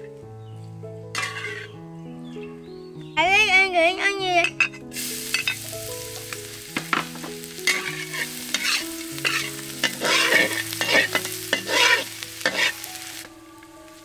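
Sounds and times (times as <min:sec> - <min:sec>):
metal spatula scraping wok: 0:01.1 - 0:01.8, 0:04.5 - 0:13.2
garlic sizzling in oil: 0:04.9 - 0:14.0.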